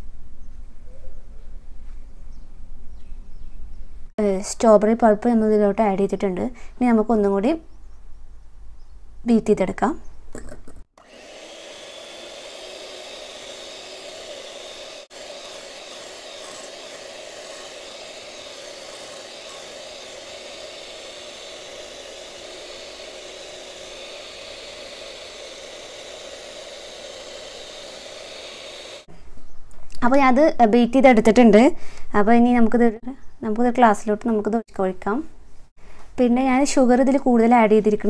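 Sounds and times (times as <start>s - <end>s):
electric hand mixer whirring: 11.0s - 29.1s.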